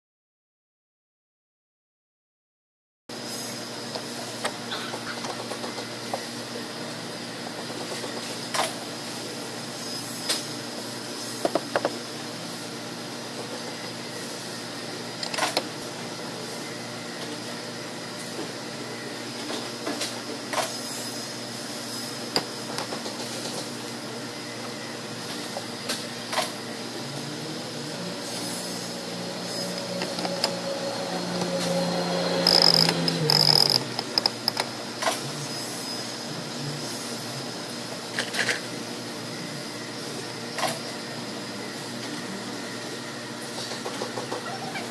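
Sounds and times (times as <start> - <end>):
steady shop hum: 3.1 - 44.9
mechanical whir: 18.2 - 38.7
metal parts clicking and clinking: 32.4 - 34.7.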